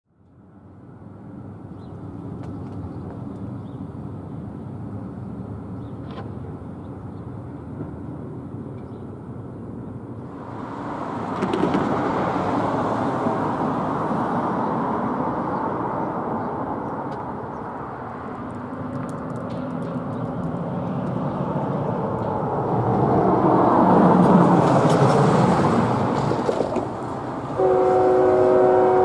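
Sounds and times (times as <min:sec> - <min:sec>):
road traffic rumbling: 0:00.1 - 0:29.0
vehicle passing close by: 0:10.3 - 0:29.0.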